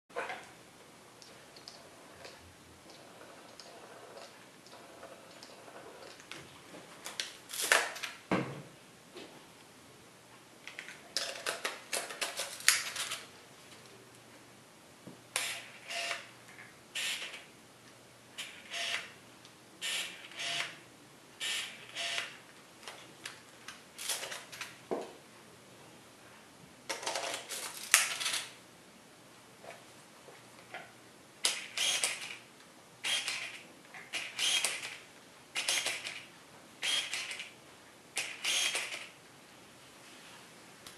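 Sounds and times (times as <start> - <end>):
camera autofocus whirring and clicking: 15.3 - 16.3, 17.0 - 17.5, 18.4 - 19.2, 19.8 - 20.8, 21.4 - 22.4, 31.4 - 32.4, 33.0 - 35.0, 35.6 - 37.6, 38.2 - 39.2.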